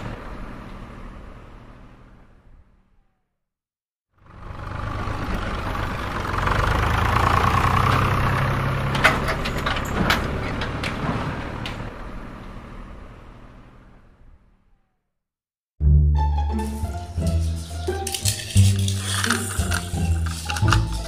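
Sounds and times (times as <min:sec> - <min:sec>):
toy tractor motor running: 0:17.6 - 0:21.0.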